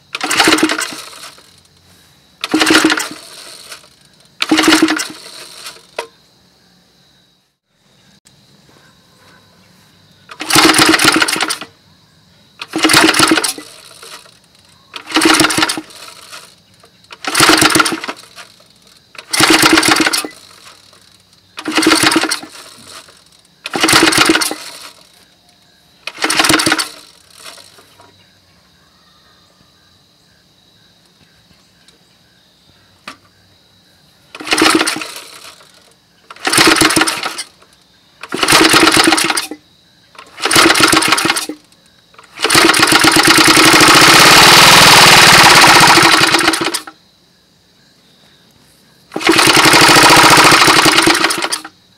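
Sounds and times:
engine cranking on recoil starter: 0:00.0 - 0:06.2, 0:10.3 - 0:11.8, 0:12.6 - 0:25.4, 0:26.0 - 0:28.2, 0:34.3 - 0:39.6, 0:40.2 - 0:47.0, 0:49.1 - 0:51.8.

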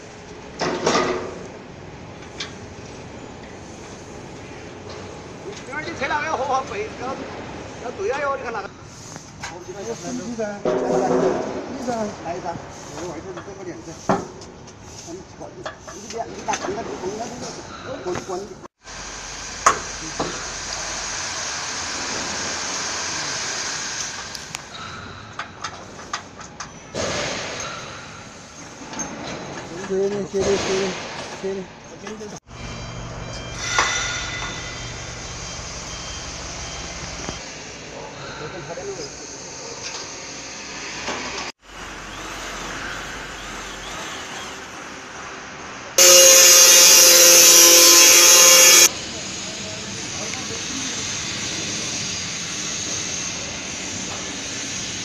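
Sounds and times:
outdoor background hiss: 0:00.0 - 0:32.5
steady hiss: 0:17.0 - 0:24.8, 0:46.0 - 0:55.0.

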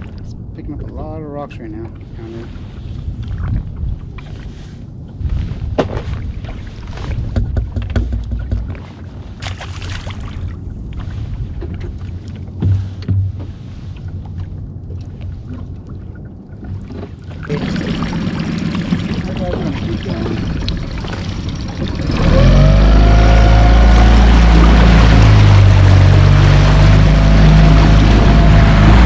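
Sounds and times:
water slapping against hull: 0:00.0 - 0:29.0
wind buffeting microphone: 0:00.0 - 0:29.0
knocks on a boat: 0:05.8 - 0:06.1, 0:07.2 - 0:09.0, 0:12.6 - 0:13.6.

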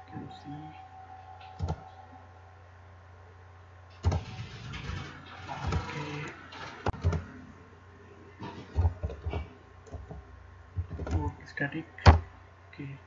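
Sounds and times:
computer keyboard keystrokes: 0:01.5 - 0:01.9, 0:06.9 - 0:07.3.

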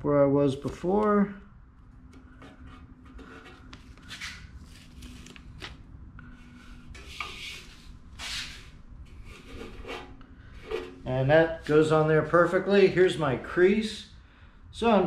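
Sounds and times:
faint steady hum: 0:00.0 - 0:15.0
tape rustling and rubbing: 0:02.3 - 0:05.8, 0:06.9 - 0:11.0.

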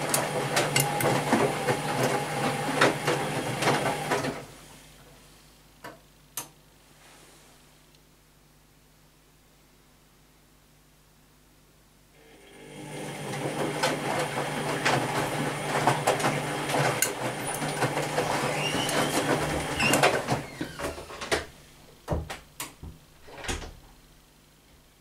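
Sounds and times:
laundry and water sloshing: 0:00.0 - 0:04.5, 0:12.9 - 0:21.0
washing machine motor hum: 0:00.0 - 0:04.6, 0:12.2 - 0:23.7.

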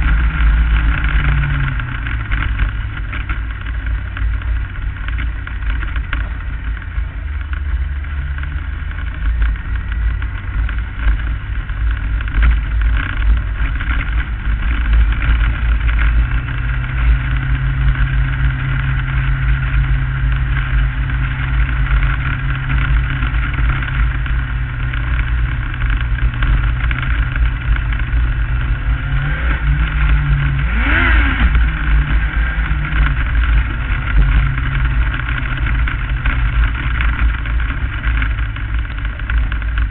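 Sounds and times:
heavy low rumble: 0:00.0 - 0:39.9
race car engine running: 0:00.0 - 0:39.9.

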